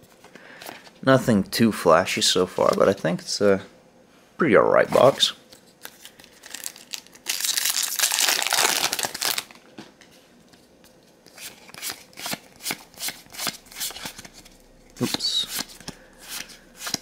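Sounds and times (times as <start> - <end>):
foil wrapper crinkling and tearing: 5.8 - 9.6.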